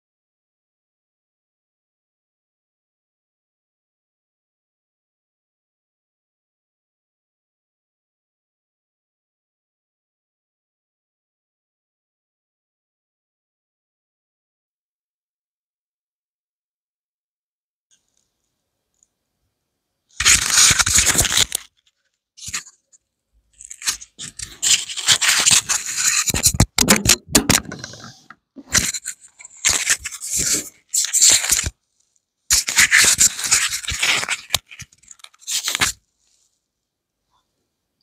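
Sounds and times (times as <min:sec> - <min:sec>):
wooden boards scraping and knocking: 0:25.4 - 0:28.9.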